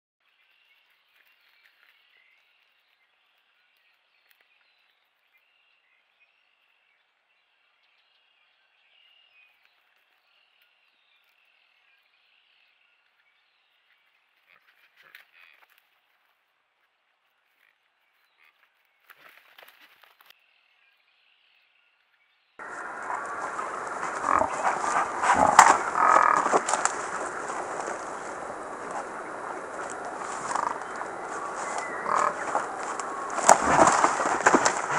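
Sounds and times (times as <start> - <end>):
deer scuffling: 22.6 - 34.9
frogs trilling: 22.6 - 34.9
hooves knocking: 22.6 - 34.9
microphone hiss: 22.6 - 34.9.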